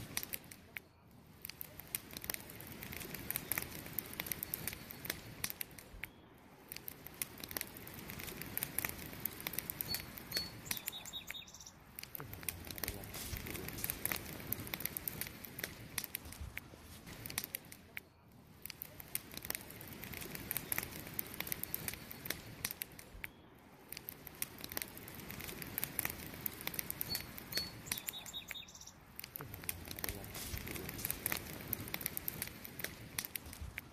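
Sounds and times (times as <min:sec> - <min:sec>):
campfire crackling and popping: 0:00.0 - 0:33.9
hiss of burning logs: 0:00.0 - 0:33.9.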